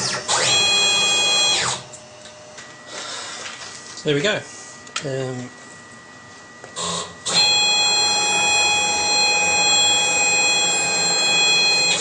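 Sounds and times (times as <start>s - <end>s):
stepper motors whining: 6.8s - 12.0s.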